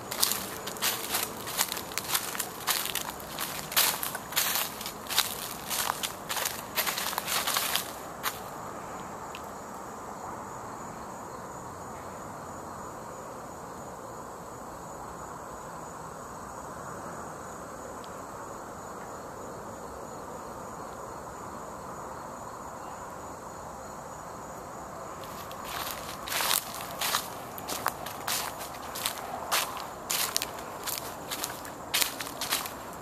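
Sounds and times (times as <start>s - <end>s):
footsteps crunching dry leaves: 0.0s - 8.5s, 25.2s - 33.0s
background hiss: 0.0s - 33.0s
insects trilling: 0.0s - 33.0s.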